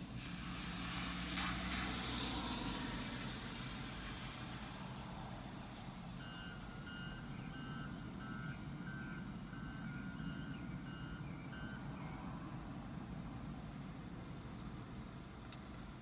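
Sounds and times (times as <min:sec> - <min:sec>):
reversing alarm beeping: 0:06.2 - 0:12.1.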